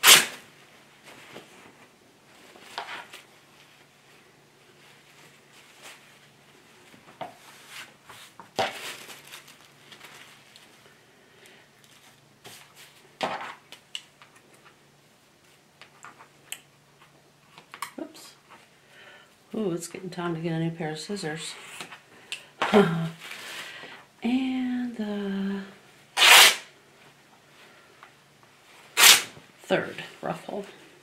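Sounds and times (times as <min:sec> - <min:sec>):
fabric and paper rustling: 0:00.8 - 0:11.0.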